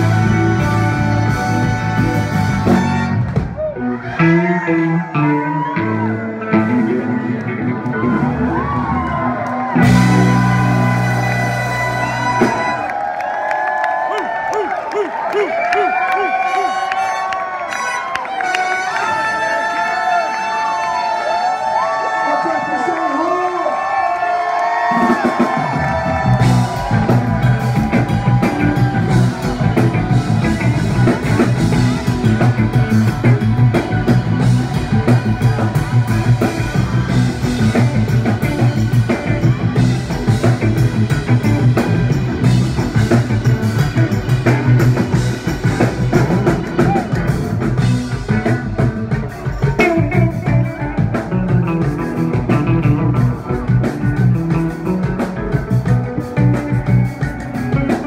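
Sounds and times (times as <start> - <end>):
funk band playing live: 0.0 - 13.2, 24.9 - 58.0.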